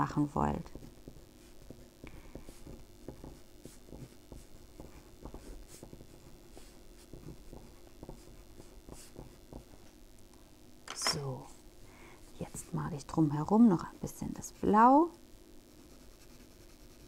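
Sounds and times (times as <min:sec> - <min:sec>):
pencil scratching on paper: 0:00.6 - 0:09.9, 0:15.7 - 0:17.0.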